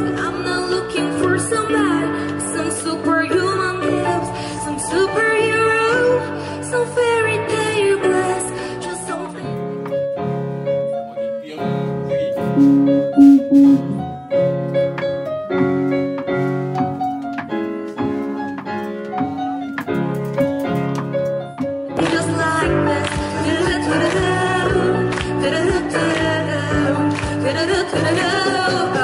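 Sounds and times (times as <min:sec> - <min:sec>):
electronic keyboard piano melody: 0:12.5 - 0:14.5.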